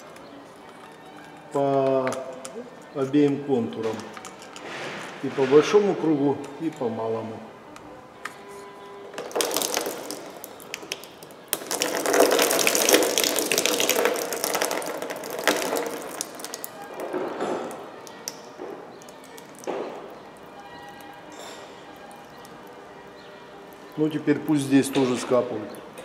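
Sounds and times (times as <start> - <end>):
coolant pouring into container: 9.2 - 16.8.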